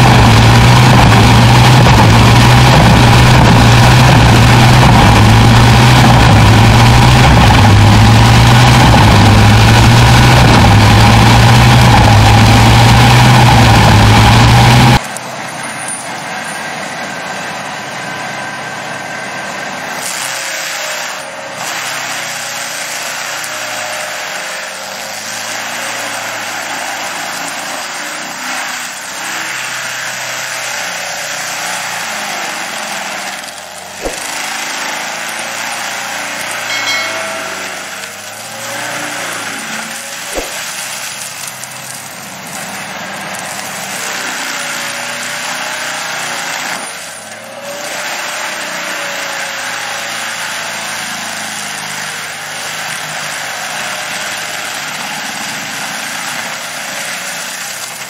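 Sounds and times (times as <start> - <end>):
forestry mulcher grinding stump: 0.0 - 58.0
wood chipper running: 0.0 - 58.0
sharp knock: 40.3 - 40.8.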